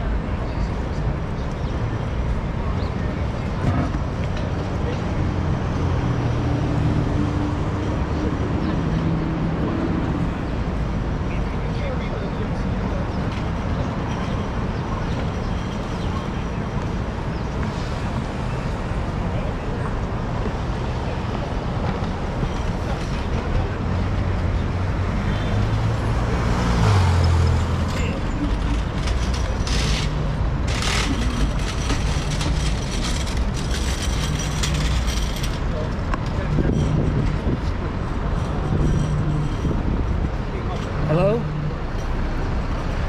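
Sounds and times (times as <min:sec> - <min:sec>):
street traffic rumble: 0:00.0 - 0:43.0
vehicle engine hum: 0:00.0 - 0:43.0
wind rumbling on microphone: 0:35.7 - 0:41.0.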